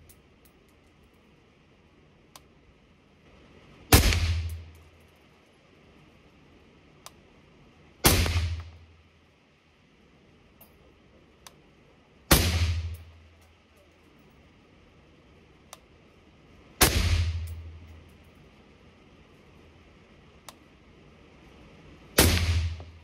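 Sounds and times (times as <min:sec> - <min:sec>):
suppressed rifle shots: 0:03.9 - 0:04.7, 0:08.0 - 0:08.8, 0:12.3 - 0:13.1, 0:16.8 - 0:17.6, 0:22.2 - 0:23.0
faint clicks: 0:15.7 - 0:15.9, 0:20.4 - 0:20.7.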